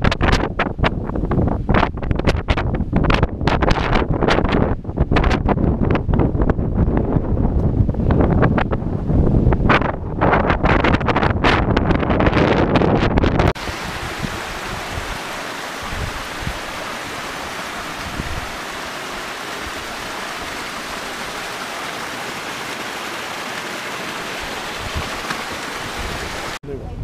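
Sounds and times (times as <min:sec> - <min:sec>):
water rushing down channel: 0:13.6 - 0:26.6.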